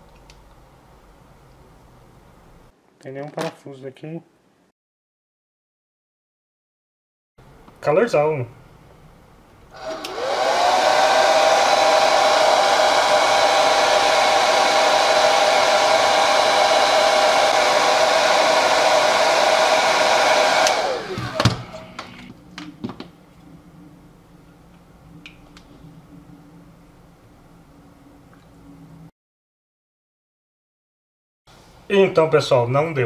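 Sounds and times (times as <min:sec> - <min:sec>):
hair dryer blowing: 0:09.7 - 0:22.3.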